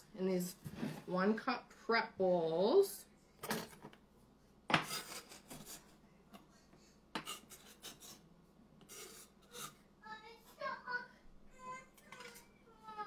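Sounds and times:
scraping across cutting board: 8.8 - 9.8.

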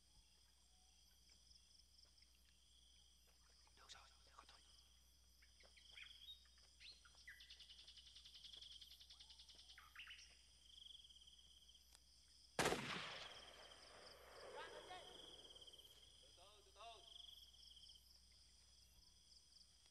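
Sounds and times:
insects chirping: 0.0 - 19.9
birds chirping: 2.1 - 11.6.

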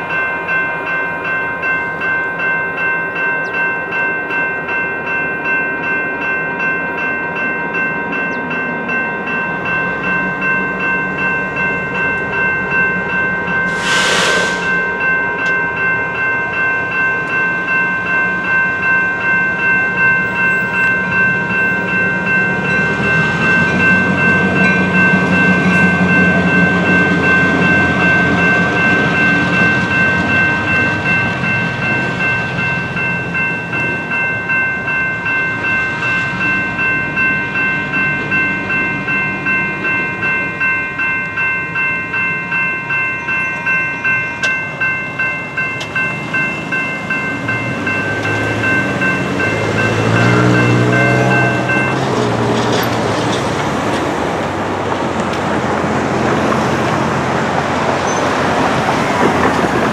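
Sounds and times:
railroad crossing bells ringing: 0.0 - 59.9
short hiss: 13.7 - 14.9.

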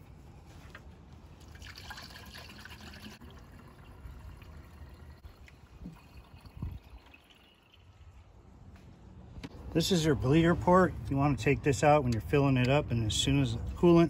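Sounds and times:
water trickling and dripping: 1.4 - 8.3.

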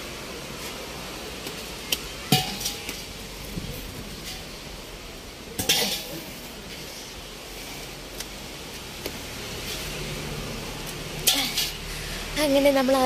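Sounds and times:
gas cylinder clanking on concrete: 2.3 - 3.0.

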